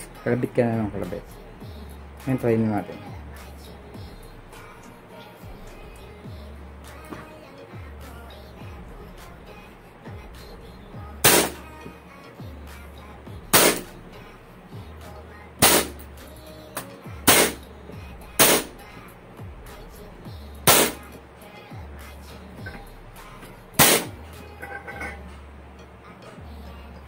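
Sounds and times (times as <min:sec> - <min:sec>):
airsoft pistol shots: 0:11.2 - 0:11.6, 0:13.6 - 0:13.9, 0:15.6 - 0:16.0, 0:17.3 - 0:17.6, 0:18.4 - 0:18.7, 0:20.7 - 0:21.0, 0:23.8 - 0:24.1.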